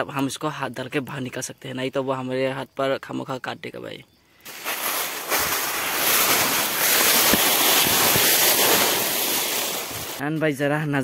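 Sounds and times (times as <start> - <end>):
wind rushing: 4.5 - 10.2.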